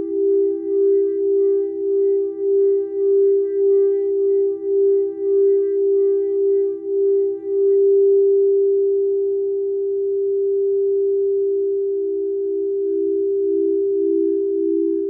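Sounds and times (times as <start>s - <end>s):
singing bowls ringing: 10.0s - 15.0s.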